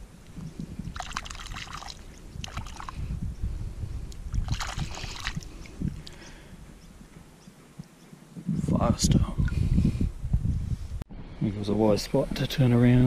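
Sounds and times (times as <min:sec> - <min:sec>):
water sloshing and splashing: 0:00.0 - 0:03.0, 0:04.3 - 0:06.2.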